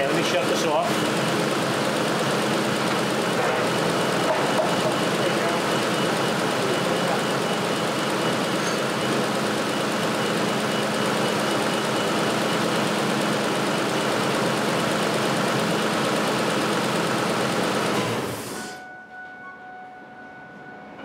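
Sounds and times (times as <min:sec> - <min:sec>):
truck engine idling: 0:00.0 - 0:18.8.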